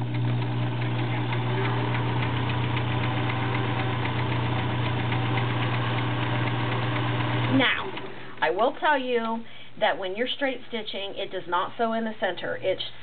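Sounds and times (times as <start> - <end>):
sewing machine running: 0.0 - 8.4.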